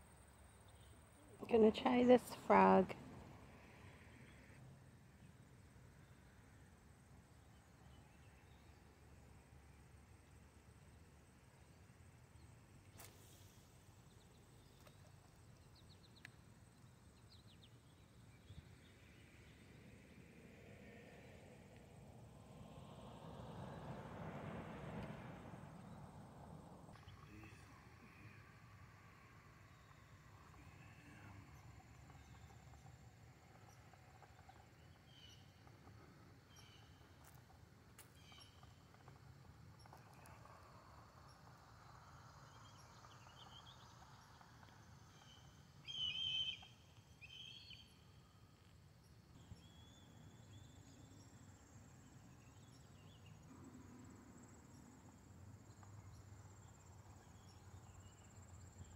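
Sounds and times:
faint high bird chirps: 45.2 - 48.0.

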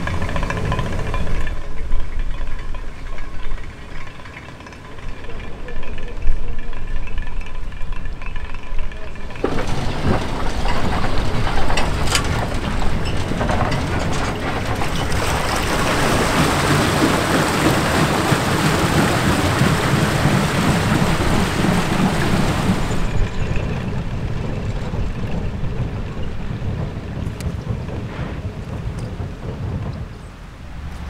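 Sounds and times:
water rushing and splashing: 0.0 - 5.2, 9.1 - 31.0
steel wheels clanking on rails: 0.0 - 31.0.

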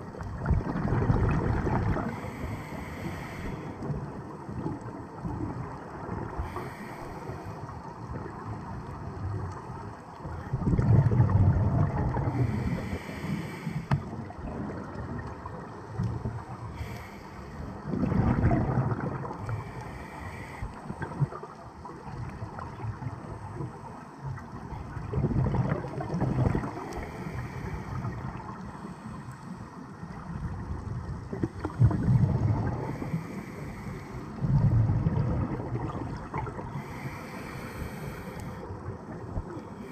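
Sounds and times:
exhaled bubbles underwater: 0.0 - 16.8, 17.6 - 39.9
low steady regulator hiss: 0.0 - 39.9.

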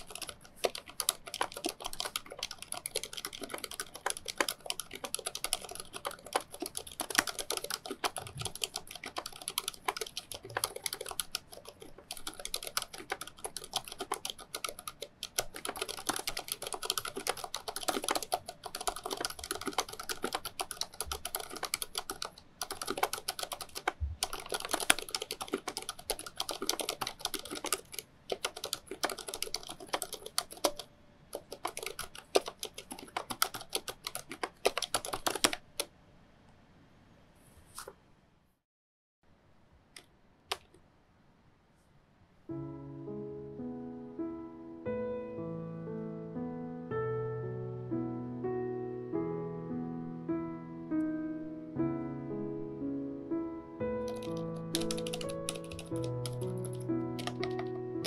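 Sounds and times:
mechanical keyboard typing: 0.0 - 35.9, 40.0 - 40.8, 54.0 - 58.0.

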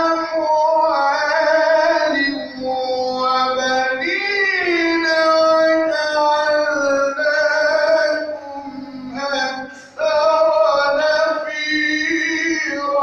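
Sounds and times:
man reciting melodically: 0.0 - 13.0.

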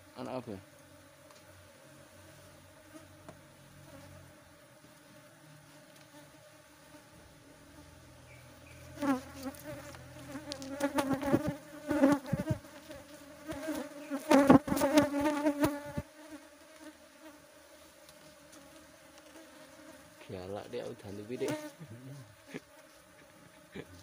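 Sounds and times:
bees buzzing past: 0.0 - 24.0.

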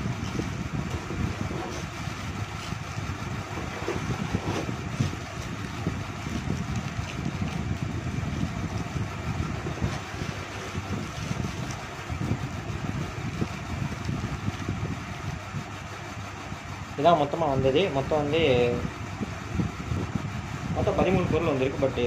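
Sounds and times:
wind buffeting microphone: 0.0 - 15.8, 17.5 - 22.0
plastic bags crinkling: 4.7 - 12.4.

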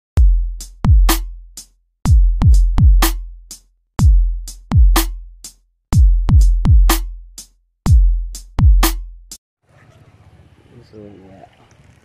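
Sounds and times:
electronic drum machine music: 0.2 - 1.3, 2.1 - 3.2, 4.0 - 5.2, 6.0 - 7.1, 7.9 - 9.1.

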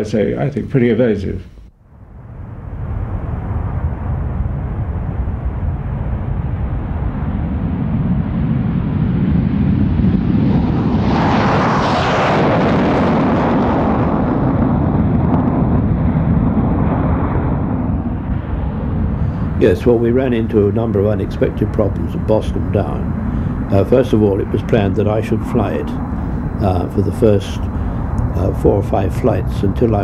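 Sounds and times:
jet engine rumble: 0.0 - 30.0.

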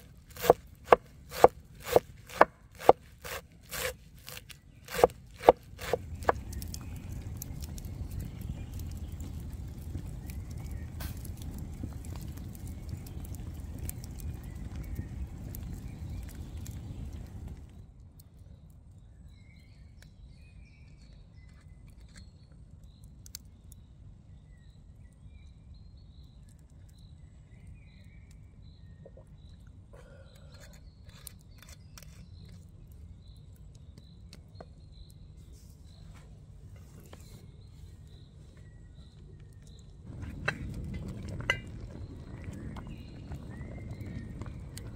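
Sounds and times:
birds calling: 0.0 - 17.7
steady low rumble: 6.0 - 18.1, 37.6 - 44.9.

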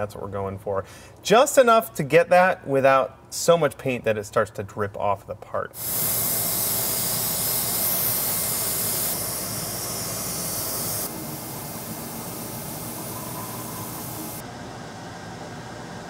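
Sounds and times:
airbrush hissing: 5.8 - 14.4.

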